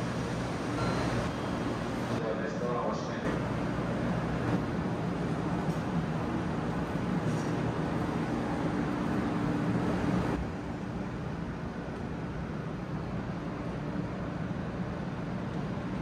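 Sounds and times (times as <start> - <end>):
train humming and hissing: 0.0 - 16.0.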